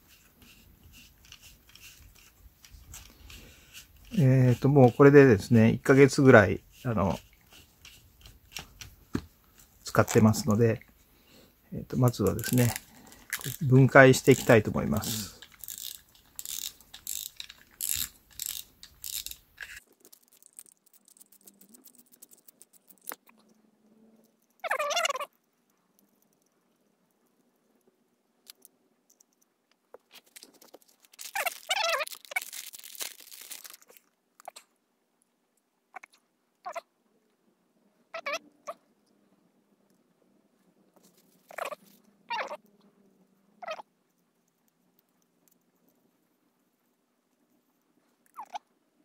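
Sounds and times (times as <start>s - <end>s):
fishing reel ratcheting clicks: 12.1s - 23.2s
faint rapid ticks: 15.7s - 23.6s
cat meowing: 38.1s - 38.8s, 41.5s - 42.6s.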